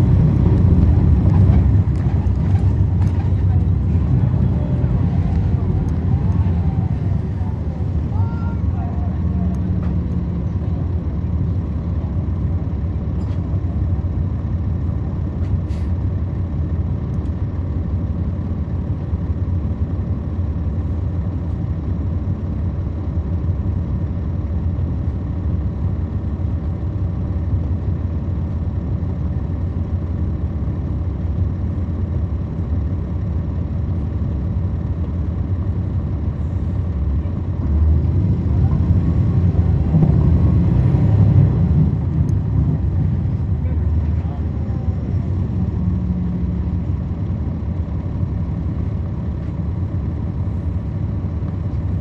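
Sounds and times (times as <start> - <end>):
bus diesel engine rumbling: 0.0 - 52.0.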